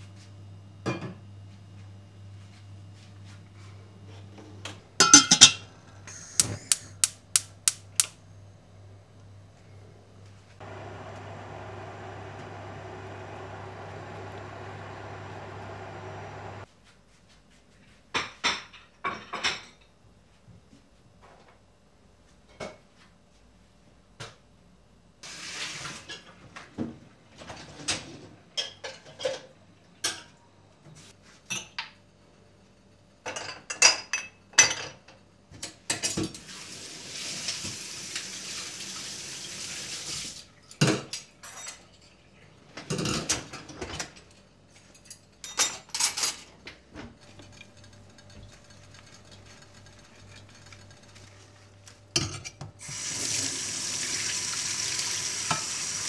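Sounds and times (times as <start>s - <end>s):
dishes and cutlery clattering: 5.0s - 5.6s, 18.2s - 19.9s, 27.4s - 29.5s, 40.7s - 42.2s, 42.8s - 44.2s, 52.2s - 52.7s
tap running: 10.6s - 16.6s, 52.8s - 55.9s.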